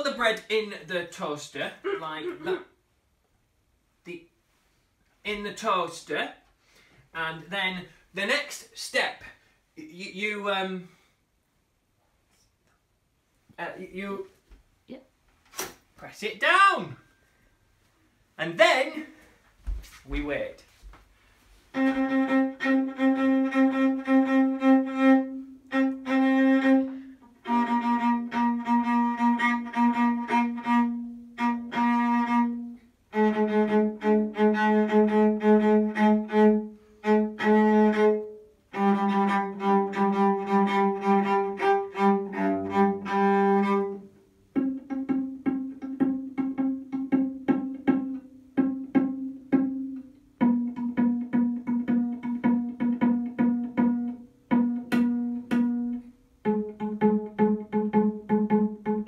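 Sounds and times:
solo cello bowed: 21.7s - 59.0s.

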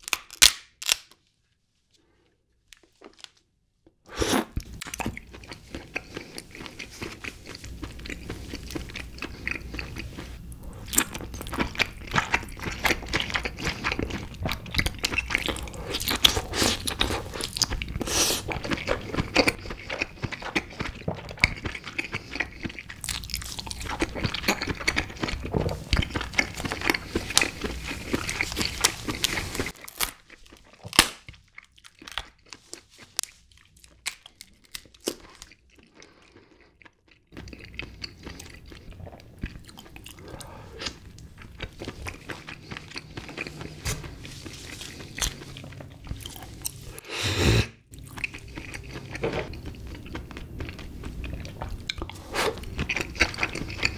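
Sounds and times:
hands breaking crab legs: 0.0s - 1.2s, 30.9s - 31.3s
chewing and crunching: 4.5s - 47.0s, 47.9s - 53.9s.

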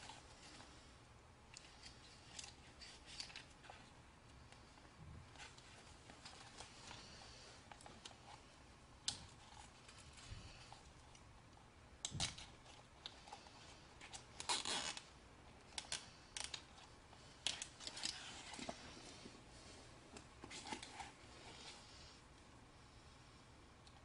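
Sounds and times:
wire ties clicking and scraping: 1.5s - 3.9s, 12.0s - 15.0s, 15.7s - 18.7s.

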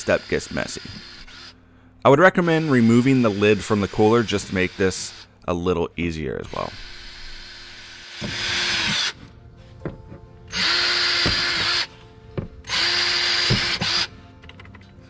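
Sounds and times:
drill bit hissing through plastic: 0.0s - 1.6s, 2.4s - 5.4s, 6.5s - 9.2s, 10.5s - 11.9s, 12.7s - 14.1s
drill motor whine: 0.0s - 1.6s, 2.2s - 5.3s, 6.5s - 9.2s, 10.5s - 11.9s, 12.6s - 14.1s.

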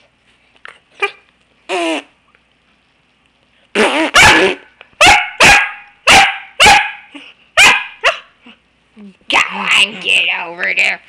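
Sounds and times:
dog yipping: 4.0s - 8.3s
dog barking: 4.1s - 8.3s.

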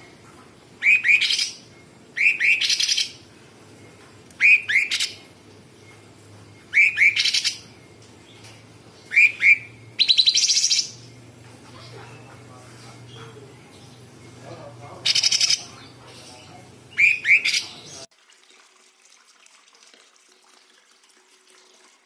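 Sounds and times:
bird singing with harsh rattle: 0.8s - 18.1s.

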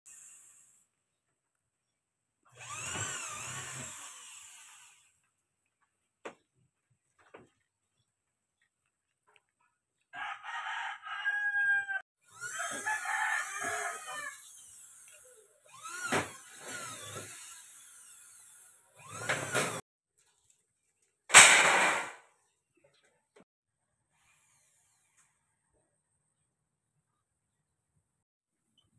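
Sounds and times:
rooster crowing: 10.1s - 14.4s.

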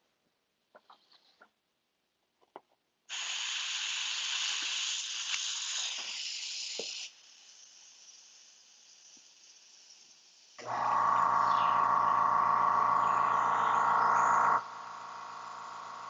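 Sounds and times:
airbrush hissing: 3.1s - 16.0s.

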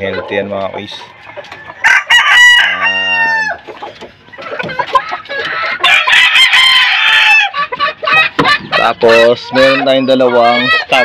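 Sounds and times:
rooster crowing: 1.1s - 3.6s, 5.8s - 7.6s.

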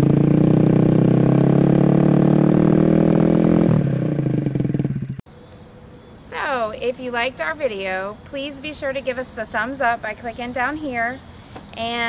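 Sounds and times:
motorcycle engine revving: 0.0s - 5.2s.

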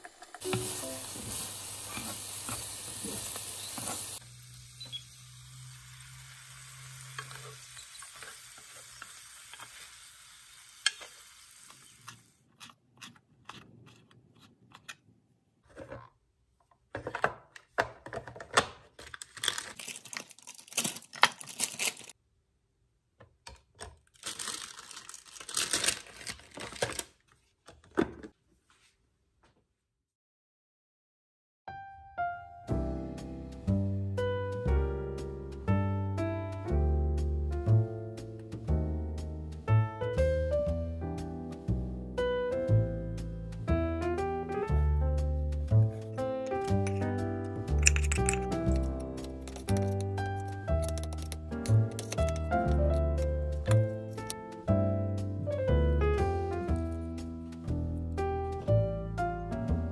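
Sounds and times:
chicken sizzling in a pan: 0.0s - 12.3s
chopsticks stirring: 12.0s - 14.9s, 47.8s - 54.4s.

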